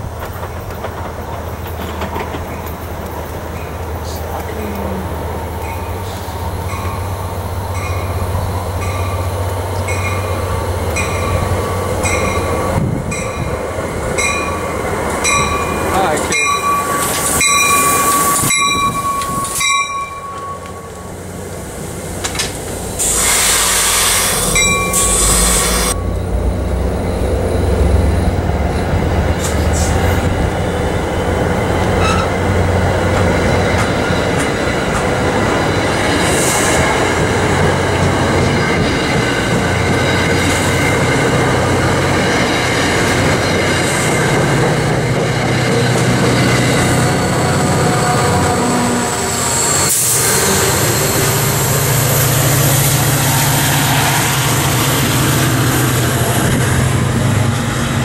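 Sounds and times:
train rumble and wheel noise: 0.0 - 58.0
train high squealing tone: 14.2 - 21.2, 22.9 - 30.2, 31.9 - 32.4, 39.8 - 58.0
hiss burst: 22.1 - 26.0.

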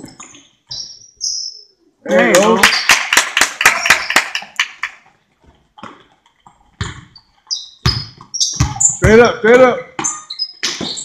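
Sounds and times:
sneaker squeaks: 0.0 - 1.7, 6.8 - 11.0
hand claps: 2.3 - 5.0
basketball bouncing on gym floor: 6.7 - 7.2, 7.8 - 11.0.

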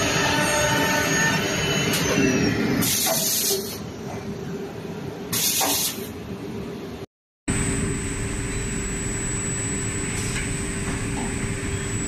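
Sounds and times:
drilling machine drone and tones: 0.0 - 3.1, 7.5 - 12.0
compressed air hissing: 5.3 - 6.1.

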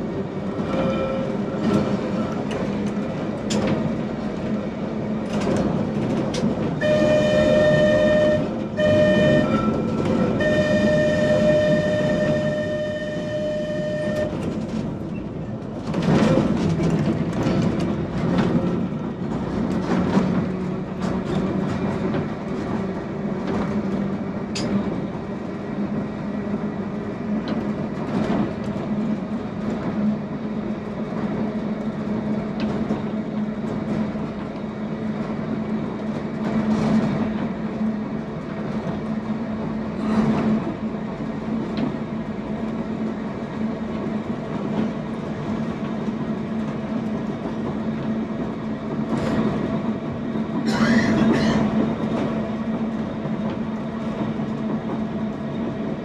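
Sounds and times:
electric tram hum: 0.0 - 56.0
wheels running on track: 0.0 - 56.0
wheels clattering over rail joints: 14.1 - 25.1.

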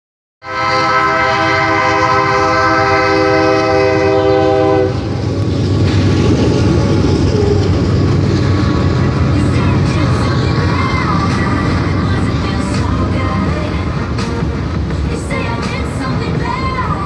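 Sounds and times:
locomotive horn chord: 0.4 - 5.2, 9.4 - 17.0
freight train rumbling past: 0.4 - 17.0.

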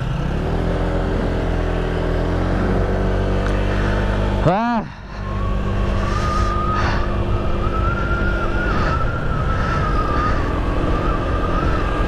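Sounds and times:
scooter engine drone: 0.0 - 12.0
high whine: 1.2 - 12.0
wind rumble on microphone: 5.1 - 12.0.

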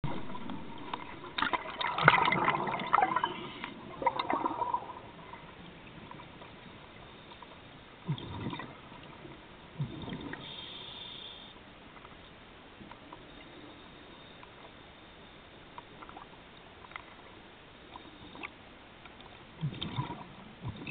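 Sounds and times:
regulator exhaust bubbles underwater: 0.0 - 7.1, 8.0 - 10.5, 19.5 - 20.9
low gurgles: 0.0 - 10.9, 15.8 - 20.9.

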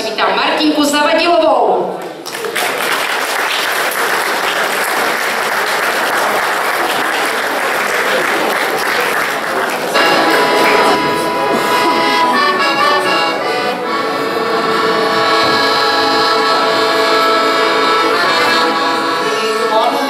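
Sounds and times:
audience applauding: 2.0 - 13.8
accordion playing: 7.6 - 20.0.

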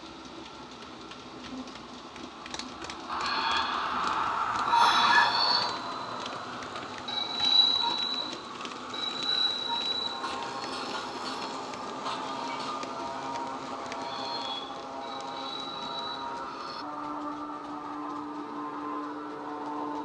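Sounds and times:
model electric locomotive running: 0.0 - 20.0
wheels clicking on track: 0.0 - 20.0
thin high steady tone: 3.1 - 8.3.

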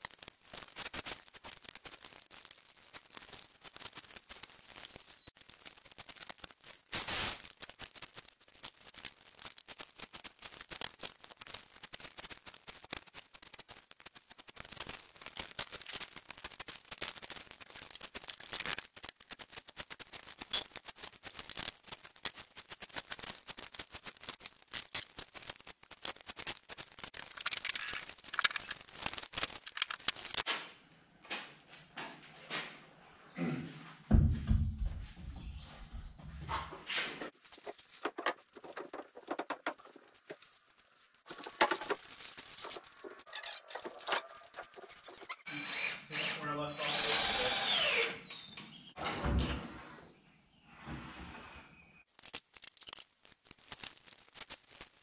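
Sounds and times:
clatter of clicks and knocks: 37.6 - 40.4.

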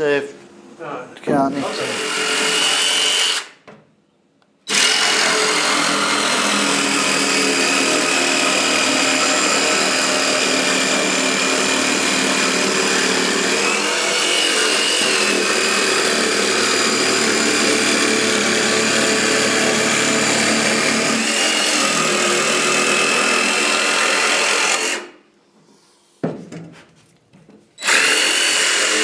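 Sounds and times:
power tool running with whine: 4.7 - 25.1, 27.8 - 29.0.

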